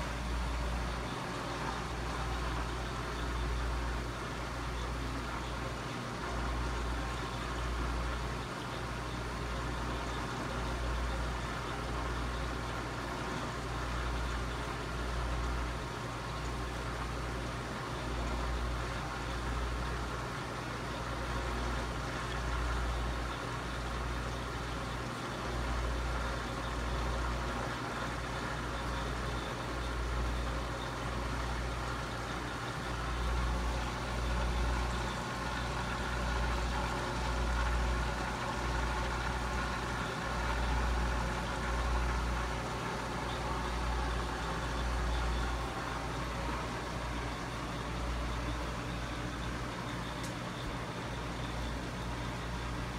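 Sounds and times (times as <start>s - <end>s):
aquarium filter hum: 0.0s - 52.9s.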